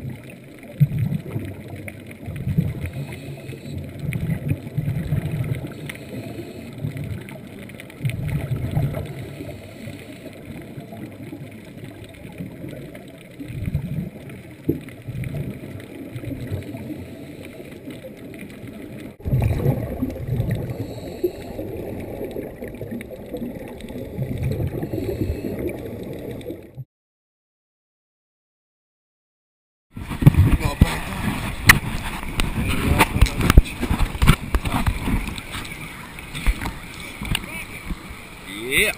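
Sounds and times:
low gurgling swells: 0.0 - 26.8
muffled underwater water noise: 0.0 - 26.9, 29.9 - 38.9.

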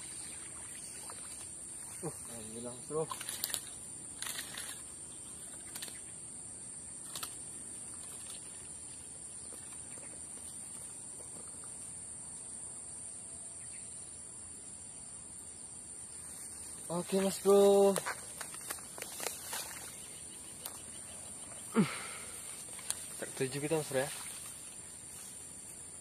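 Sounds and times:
high-pitched insect chorus: 0.0 - 26.0.

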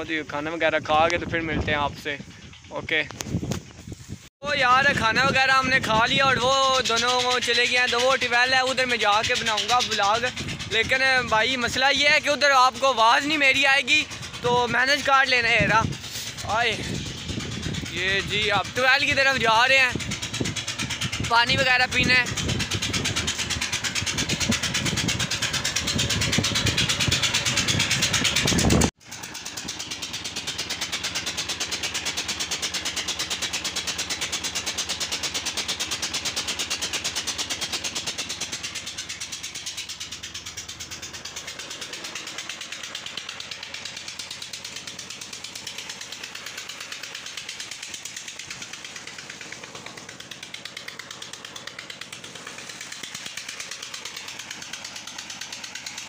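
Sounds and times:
water pump running: 0.0 - 56.0
wind rumble on microphone: 0.6 - 6.9, 9.3 - 12.2, 14.0 - 28.9.

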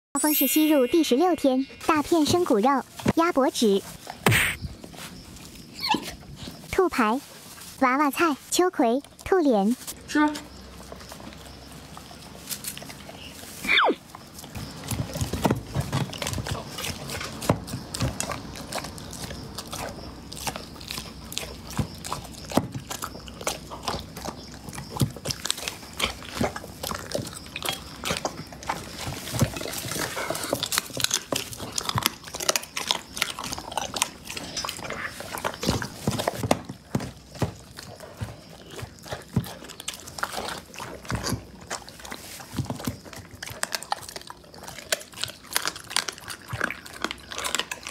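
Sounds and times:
dog crunching bones: 14.1 - 47.9.

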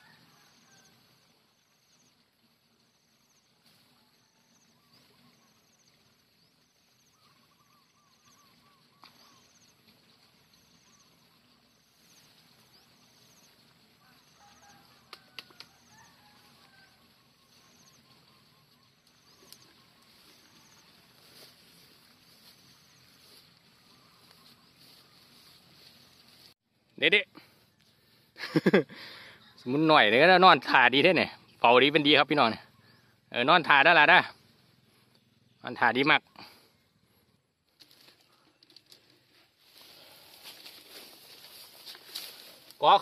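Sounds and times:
faint bird calls: 6.9 - 26.5, 32.6 - 37.4.

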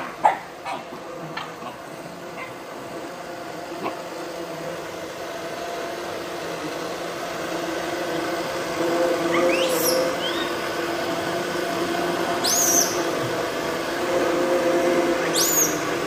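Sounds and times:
electric blender whirring: 0.0 - 16.0
high rising squeal: 8.4 - 16.0.

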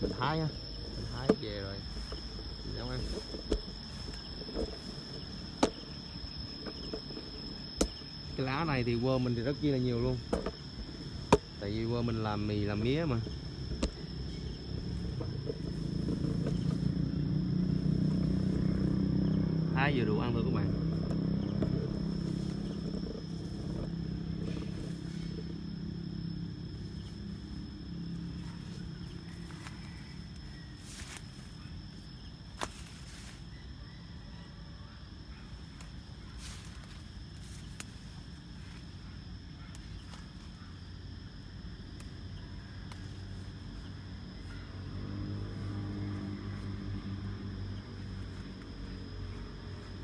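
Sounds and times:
vehicle engine humming: 10.0 - 32.0, 42.0 - 50.0
leaf stems snapping: 35.8 - 38.0, 42.8 - 43.3.

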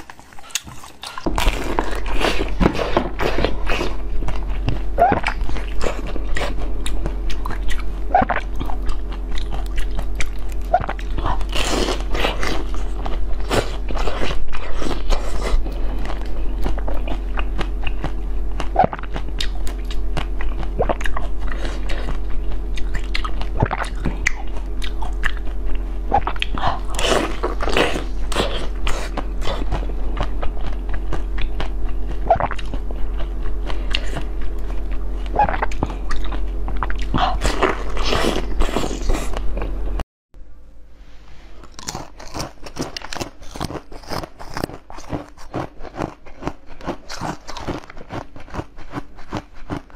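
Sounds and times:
person chewing crunchy food: 0.0 - 40.0, 41.5 - 49.9
steady low hum: 0.0 - 49.9
wet mouth sounds: 7.3 - 12.4, 22.8 - 25.4, 31.4 - 32.8, 35.3 - 39.5.

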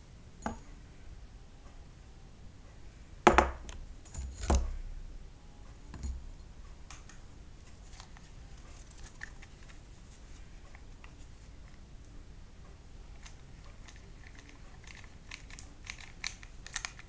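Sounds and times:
wooden boards knocking: 3.3 - 3.7.

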